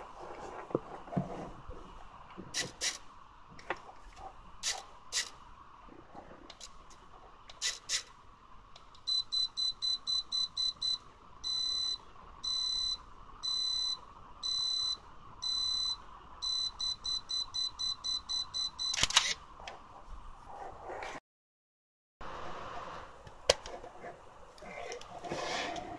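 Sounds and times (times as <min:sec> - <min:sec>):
camera self-timer beeping: 0:09.1 - 0:19.4
camera shutter click: 0:18.9 - 0:19.4
small camera clicks: 0:18.9 - 0:19.4.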